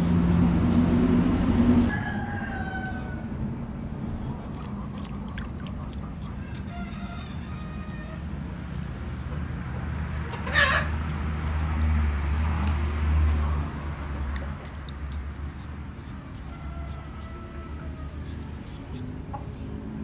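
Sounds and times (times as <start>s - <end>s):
peeler scraping vegetable skin: 0.0s - 3.2s, 5.6s - 20.0s
chicken squawking: 10.1s - 11.2s.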